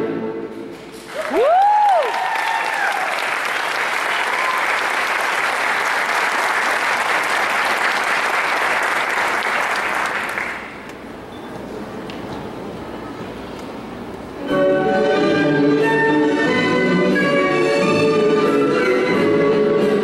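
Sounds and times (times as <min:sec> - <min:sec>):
audience applauding: 0:01.0 - 0:10.9
person cheering: 0:01.2 - 0:03.2, 0:04.2 - 0:04.9.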